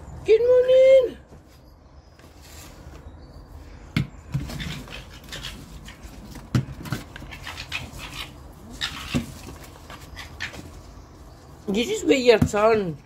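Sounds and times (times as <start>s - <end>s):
fox cubs whining and squeaking: 7.2s - 11.3s.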